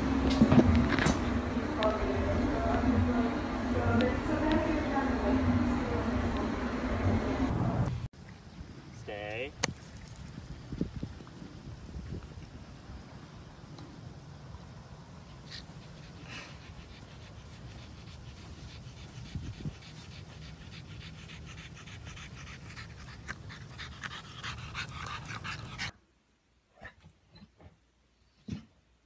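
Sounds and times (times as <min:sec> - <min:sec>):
wind rumble on microphone: 0:09.6 - 0:13.6, 0:18.8 - 0:20.2
dog panting: 0:15.3 - 0:25.9.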